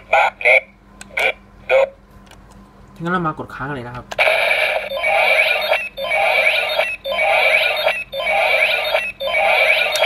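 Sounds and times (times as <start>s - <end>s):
looping electronic sound effect: 4.3s - 10.0s.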